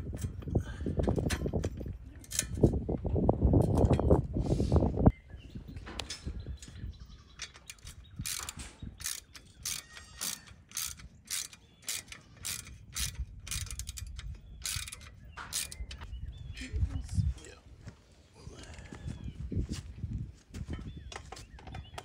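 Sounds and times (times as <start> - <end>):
ratchet wrench clicking: 7.4 - 16.0.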